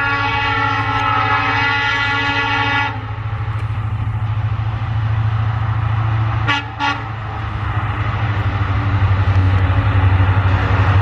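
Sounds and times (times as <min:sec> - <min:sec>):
diesel locomotive horn chord: 0:00.0 - 0:03.1, 0:06.4 - 0:07.2
diesel locomotive engine rumble: 0:00.0 - 0:11.0.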